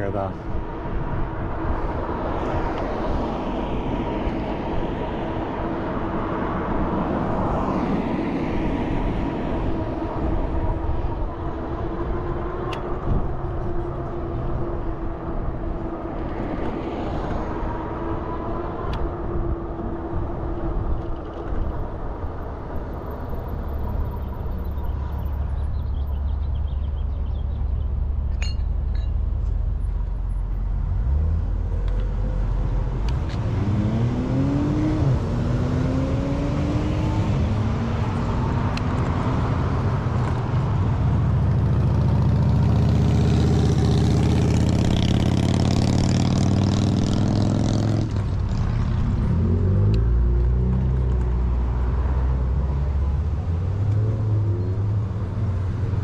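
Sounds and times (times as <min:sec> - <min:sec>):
low rumble of traffic: 0:00.0 - 0:56.0
engine note rising and falling: 0:30.9 - 0:40.4.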